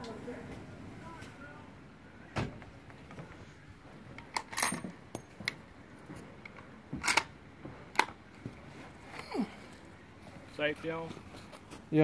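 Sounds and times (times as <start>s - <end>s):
rifle bolt metallic clicks: 7.0s - 7.3s.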